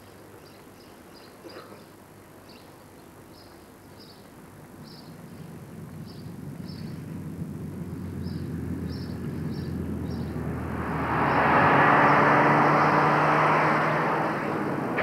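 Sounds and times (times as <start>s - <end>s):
car engine approaching: 4.6s - 15.0s.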